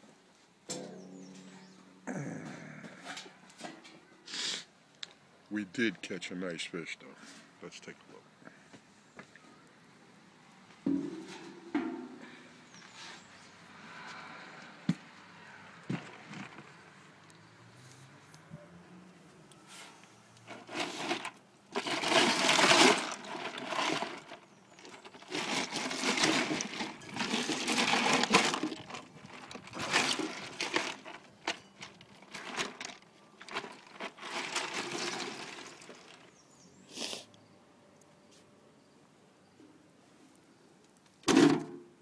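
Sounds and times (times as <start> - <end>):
ice sloshing in a cooler: 20.5 - 36.3.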